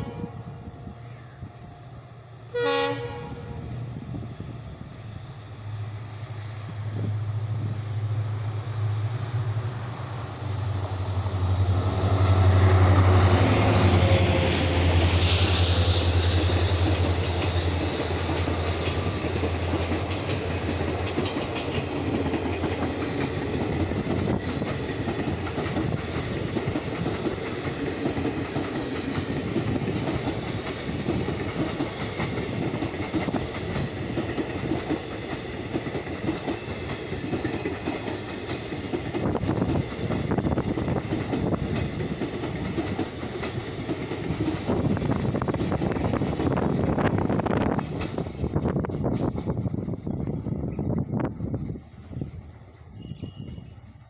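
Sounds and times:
diesel locomotive engine drone: 0:00.0 - 0:54.0
train wheels clacking over rail joints: 0:12.2 - 0:50.4.

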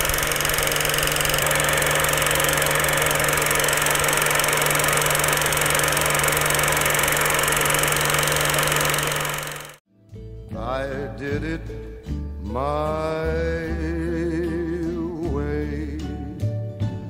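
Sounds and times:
film projector whirring: 0:00.0 - 0:09.8.

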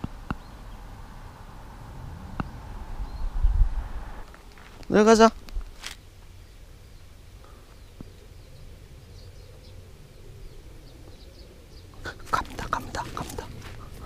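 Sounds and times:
footsteps in dry grass and leaves: 0:04.2 - 0:06.0.

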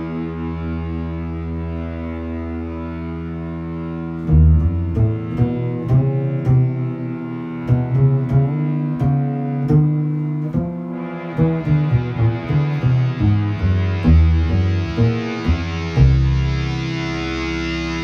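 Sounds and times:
bass and guitar music: 0:00.0 - 0:18.0.

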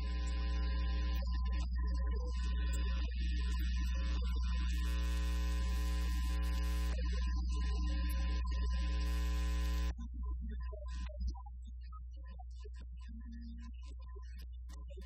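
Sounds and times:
buzzing whine of layered tones: 0:00.0 - 0:10.0
electrical mains hum: 0:00.0 - 0:10.0.

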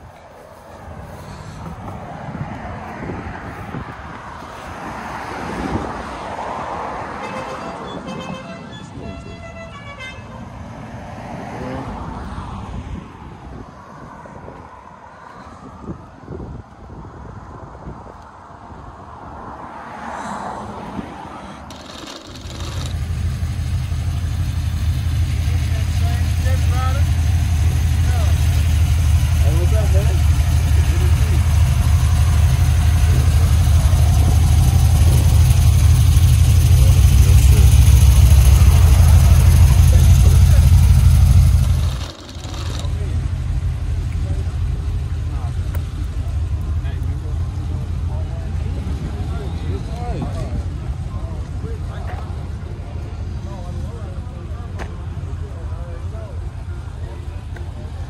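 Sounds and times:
vehicle driving past: 0:19.2 - 0:45.5
car engine idling: 0:21.7 - 0:48.7.

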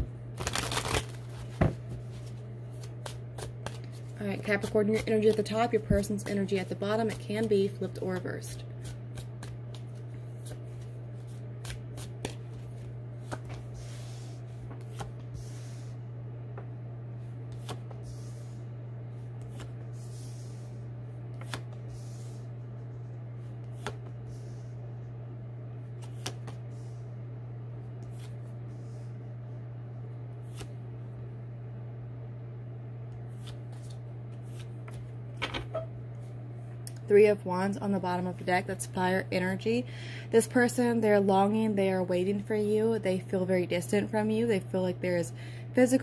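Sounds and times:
steady low hum: 0:00.0 - 0:46.0
cards sliding: 0:21.3 - 0:22.4.

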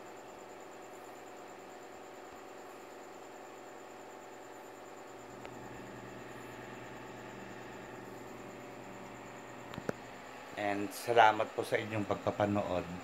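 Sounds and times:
low hum: 0:05.1 - 0:10.6.

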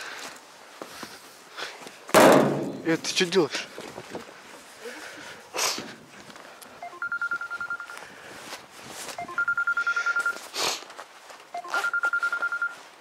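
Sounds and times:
phone ringtone beeps: 0:06.8 - 0:08.0, 0:09.2 - 0:10.5, 0:11.5 - 0:12.8.

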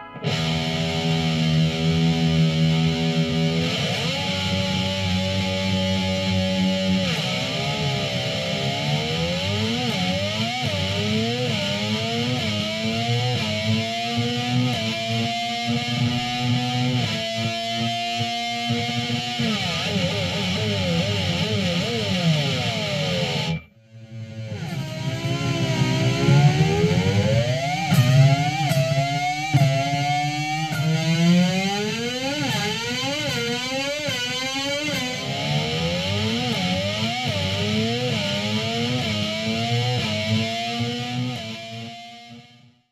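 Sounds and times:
distorted electric guitar pitch sweeps: 0:00.0 - 0:42.9.

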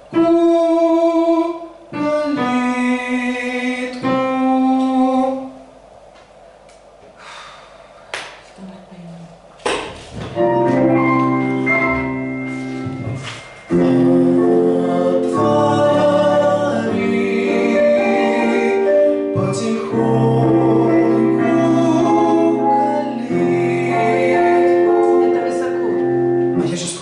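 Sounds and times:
man singing: 0:00.0 - 0:05.6, 0:13.7 - 0:25.3, 0:26.5 - 0:27.0
musical accompaniment: 0:10.4 - 0:27.0.

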